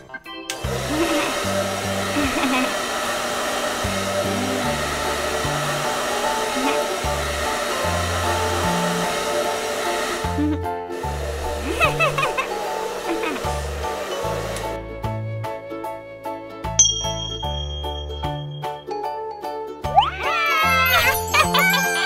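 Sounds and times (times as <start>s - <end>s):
hair dryer blowing: 0.5s - 15.2s, 20.6s - 22.0s.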